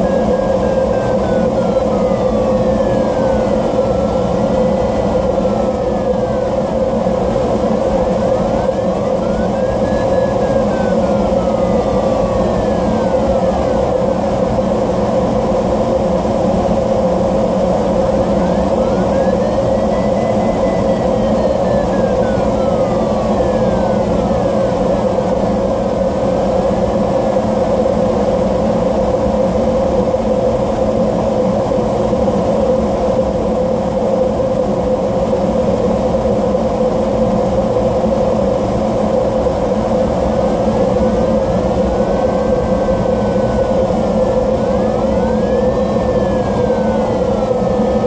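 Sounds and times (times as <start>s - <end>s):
electronic tone gliding in pitch: 0.0s - 15.6s, 17.0s - 27.1s, 40.7s - 48.0s.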